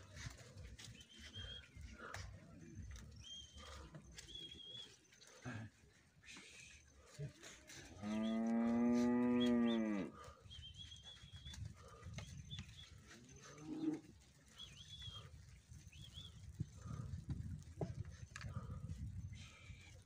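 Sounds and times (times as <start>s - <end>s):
small birds chirping: 0.0s - 20.0s
calf mooing: 8.0s - 10.1s.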